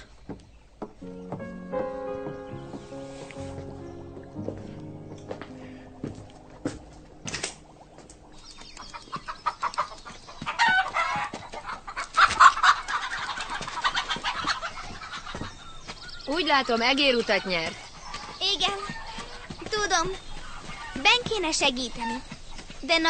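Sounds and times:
chickens clucking: 0:06.9 - 0:23.0.

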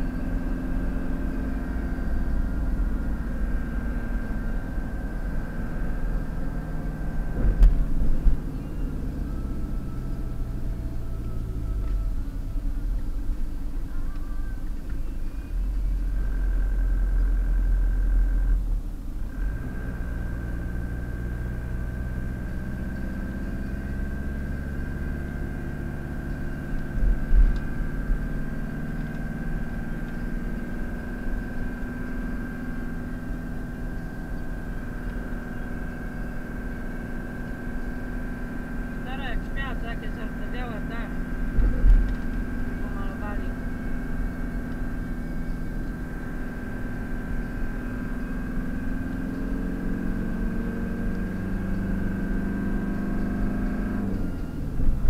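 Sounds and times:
engine and tyre rumble: 0:00.0 - 0:55.0
short thump: 0:07.4 - 0:08.4, 0:41.6 - 0:42.3.

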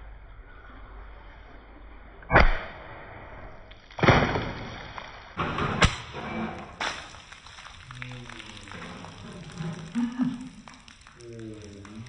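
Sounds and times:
water balloons bursting: 0:03.7 - 0:12.0
water spilling onto tiled floor: 0:03.7 - 0:12.0.

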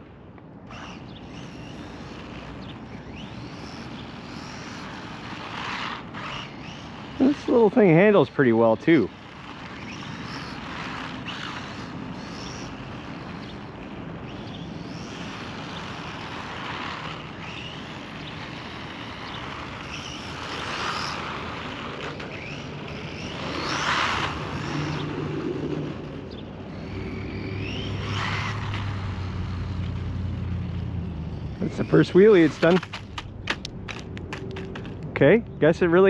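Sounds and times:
rc truck motor whining: 0:00.0 - 0:35.0
tyres rushing on asphalt: 0:00.8 - 0:36.0.

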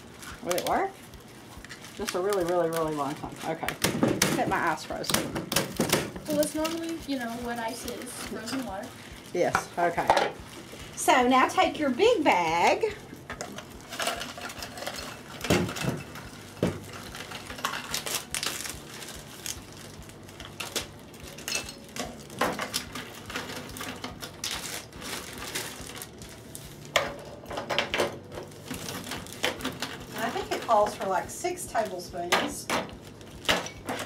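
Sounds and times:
plastic bags crinkling: 0:00.0 - 0:27.5, 0:28.1 - 0:34.0
sharp crackles and clicks: 0:00.2 - 0:03.8, 0:06.2 - 0:27.0.

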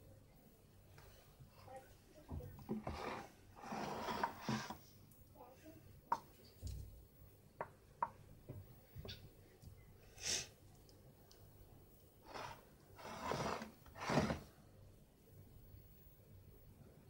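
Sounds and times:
spatula scraping batter: 0:02.6 - 0:04.9, 0:12.2 - 0:14.5.

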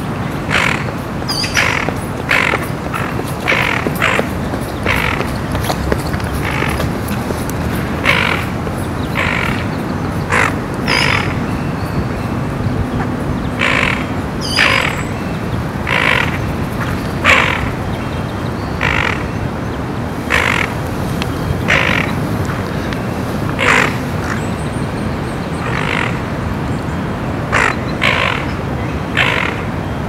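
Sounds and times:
ducks rasping alarm calls: 0:00.4 - 0:11.4, 0:13.6 - 0:15.0, 0:15.8 - 0:16.5, 0:17.2 - 0:17.8, 0:18.8 - 0:19.3, 0:20.3 - 0:20.8, 0:21.6 - 0:22.3, 0:23.5 - 0:24.4, 0:29.2 - 0:29.7.

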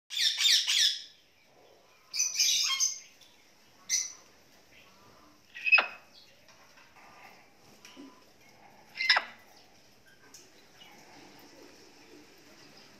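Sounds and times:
parrots squawking: 0:00.1 - 0:01.1, 0:05.5 - 0:06.0, 0:08.9 - 0:09.4.

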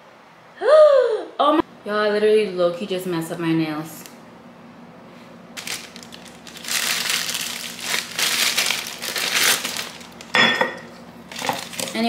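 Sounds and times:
plastic bag crinkling: 0:05.6 - 0:10.4, 0:11.2 - 0:12.0.

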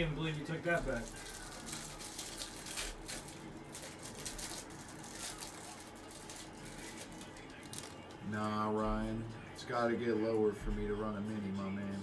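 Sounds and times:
foil wrapper crinkling: 0:00.0 - 0:08.2.

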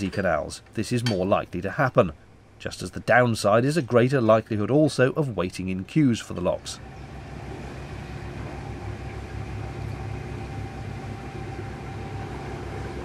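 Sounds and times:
diesel engine running: 0:06.5 - 0:13.0.

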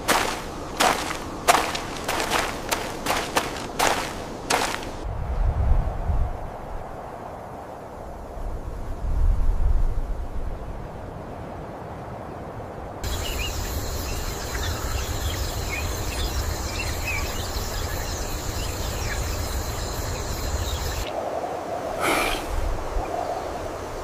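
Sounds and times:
insects buzzing: 0:00.0 - 0:05.0, 0:13.0 - 0:21.2
low wind rumble: 0:00.0 - 0:24.0.

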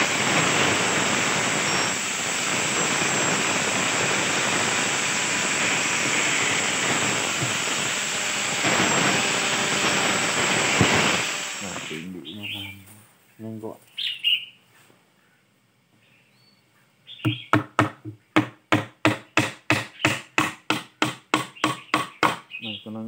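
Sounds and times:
angle grinder grinding wood: 0:00.0 - 0:12.7.

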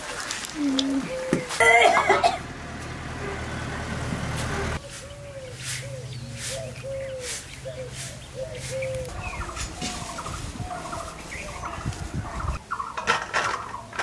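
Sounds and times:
birds chirping: 0:00.1 - 0:14.0
chickens clucking: 0:00.6 - 0:14.0
straw broom swishing on earth: 0:04.3 - 0:12.5.

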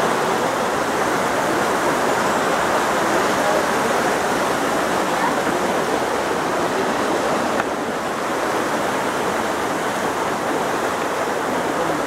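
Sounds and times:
waterfall roaring: 0:00.0 - 0:12.0.

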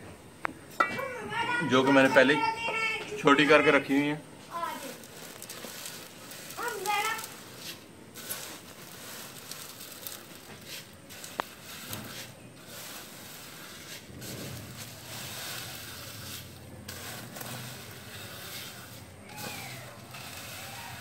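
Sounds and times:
steady hiss: 0:00.0 - 0:21.0
dry noodles scraping on metal tray: 0:04.5 - 0:21.0.

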